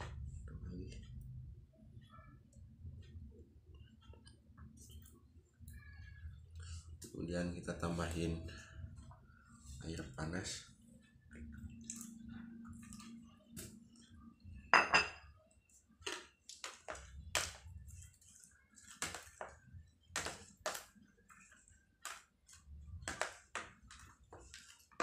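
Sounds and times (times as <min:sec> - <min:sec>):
mug clinking down: 0:14.7 - 0:15.3.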